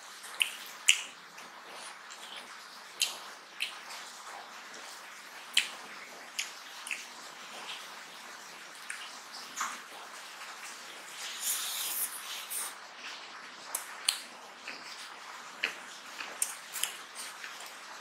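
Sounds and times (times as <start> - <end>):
wet chewing and smacking: 0.1 - 17.9
brief rustling hiss: 11.2 - 12.8.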